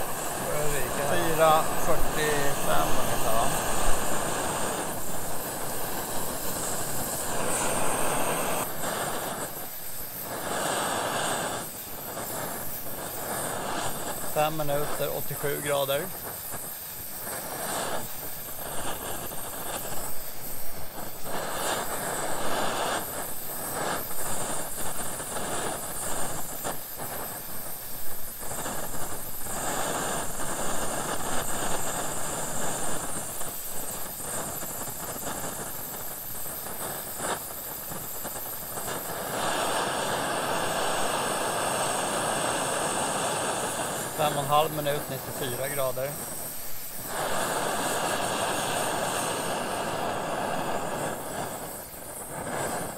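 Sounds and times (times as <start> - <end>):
gas burner hissing: 0.0 - 52.9.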